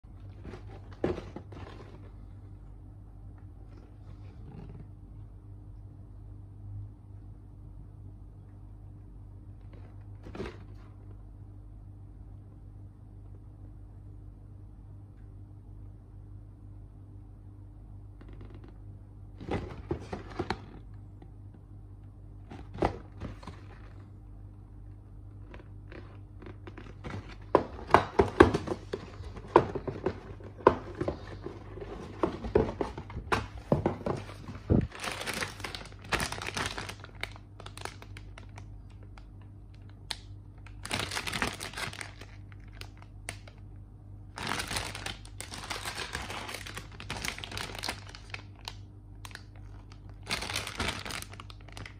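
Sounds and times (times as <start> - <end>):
plastic bags crinkling: 25.4 - 43.6, 44.3 - 51.9.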